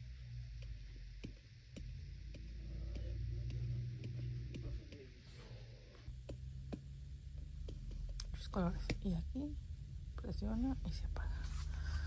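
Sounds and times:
steady low hum: 0.0s - 12.0s
faint regular ticking: 6.1s - 11.2s.

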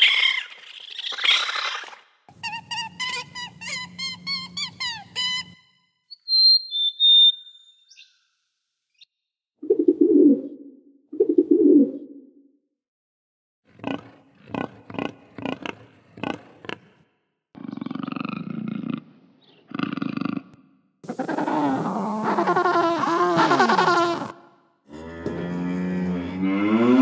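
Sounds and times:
high squeaky chirps: 0.0s - 8.1s
low cooing calls: 9.6s - 10.6s, 21.0s - 24.4s.

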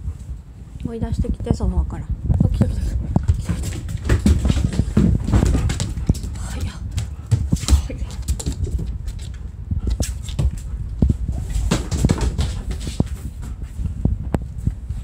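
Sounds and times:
dog claws clicking on wooden floor: 3.2s - 10.7s.

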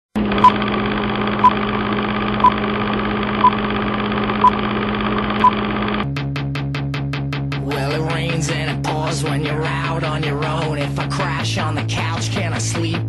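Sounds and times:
film projector whirring and rattling: 0.2s - 6.0s.

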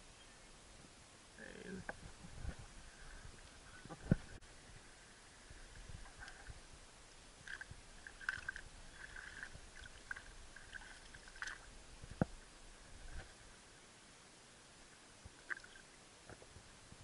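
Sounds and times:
small water splashes and drips: 7.4s - 12.3s, 15.3s - 16.0s
paddle dipping into water: 7.4s - 13.4s.

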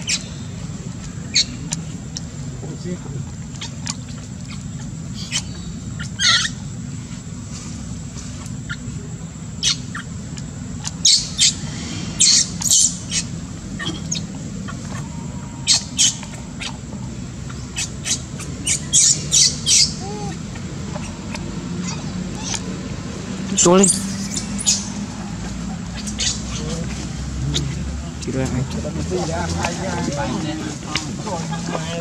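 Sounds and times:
baby monkey squealing: 0.0s - 0.4s, 3.6s - 6.7s, 9.6s - 22.8s, 23.8s - 25.2s, 25.9s - 26.7s
steady low hum: 0.0s - 32.0s.

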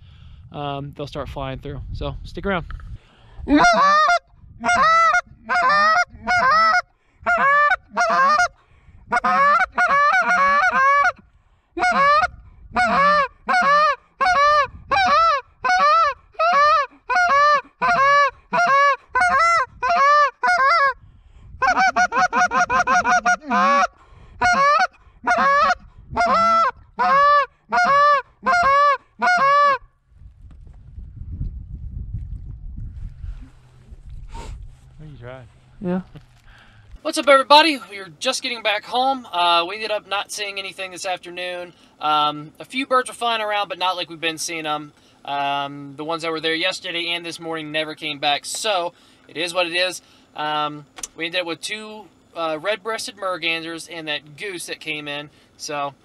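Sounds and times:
goose call honks and clucks: 3.5s - 11.2s, 11.8s - 21.0s, 21.6s - 29.9s.

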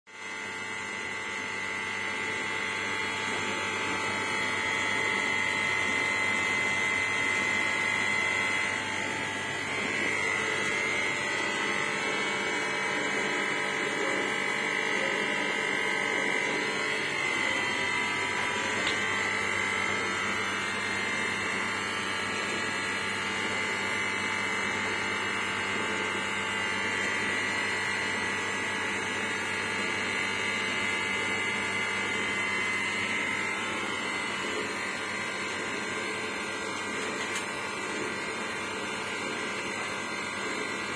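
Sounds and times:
electric buzzing hum: 0.1s - 40.9s.

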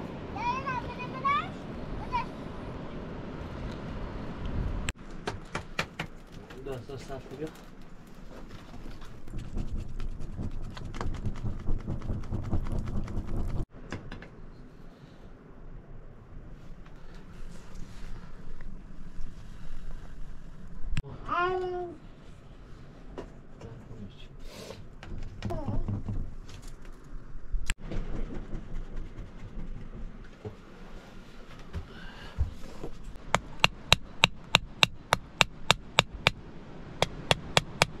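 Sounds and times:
wood fire crackling: 5.8s - 13.6s
hammer striking steel bar: 37.0s - 38.0s.

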